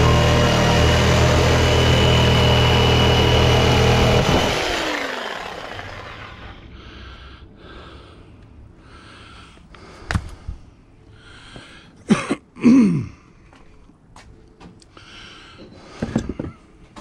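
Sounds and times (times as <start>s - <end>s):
power tool motor spinning down: 0.0s - 6.7s
person breathing heavily: 6.6s - 14.0s, 14.9s - 16.9s.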